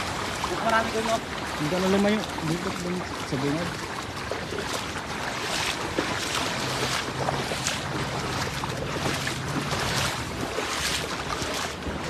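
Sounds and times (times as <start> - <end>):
river water splashing: 0.0 - 12.0
net dragged through water: 3.8 - 12.0.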